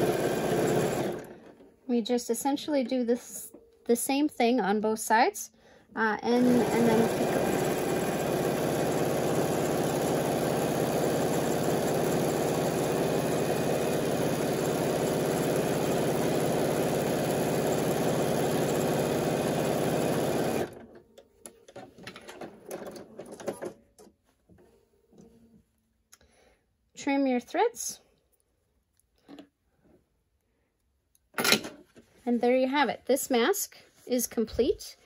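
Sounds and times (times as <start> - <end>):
sewing machine stitching: 0.0 - 1.7, 6.4 - 20.9.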